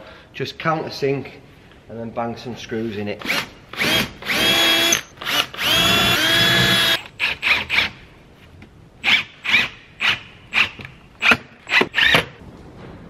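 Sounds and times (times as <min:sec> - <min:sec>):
drill trigger bursts: 0:03.3 - 0:08.0
drill motor whine: 0:03.8 - 0:07.0.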